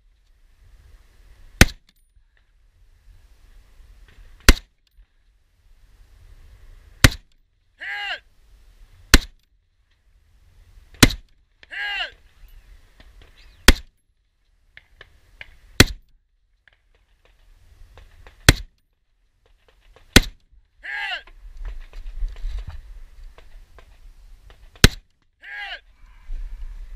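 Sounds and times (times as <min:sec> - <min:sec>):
person shouting: 0:07.8 - 0:08.3, 0:11.6 - 0:12.2, 0:20.8 - 0:21.3, 0:25.4 - 0:25.9.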